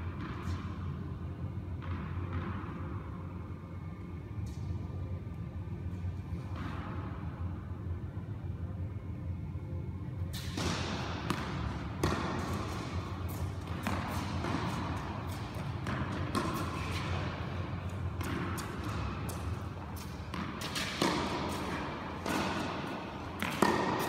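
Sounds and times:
tennis ball bouncing on court: 0.0s - 0.9s, 1.7s - 3.4s, 10.3s - 24.0s
steady low hum: 0.0s - 24.0s
tennis ball struck by racket: 10.3s - 24.0s.

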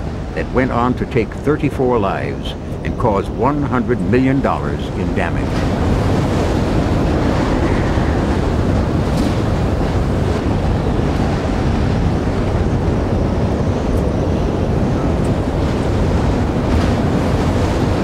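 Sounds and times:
strong wind roaring: 0.0s - 18.0s.

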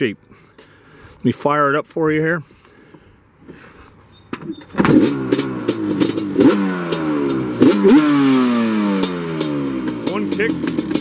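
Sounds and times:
engine revving: 4.8s - 11.0s
two-stroke engine kick-started: 9.0s - 11.0s.

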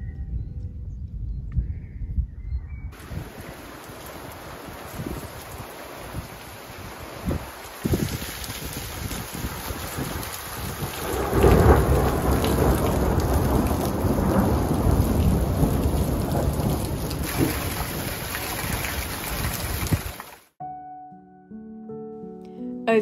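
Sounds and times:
thunder rumbling: 3.0s - 20.2s
heavy rain pouring: 3.0s - 20.5s.

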